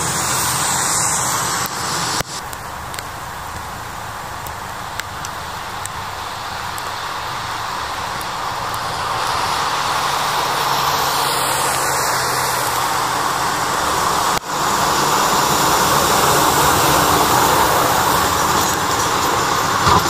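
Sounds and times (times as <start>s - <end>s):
plow blade scraping road: 0.0s - 20.0s.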